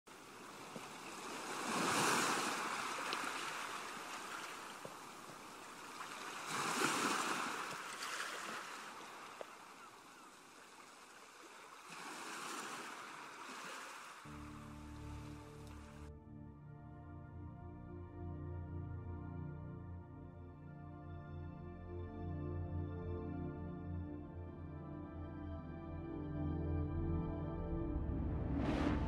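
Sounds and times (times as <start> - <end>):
ocean waves washing: 0.1 - 16.0.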